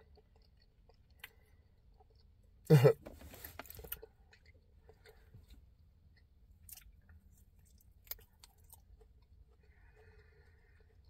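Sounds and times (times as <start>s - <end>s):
chewing jerky: 0.0s - 2.6s, 6.1s - 11.0s.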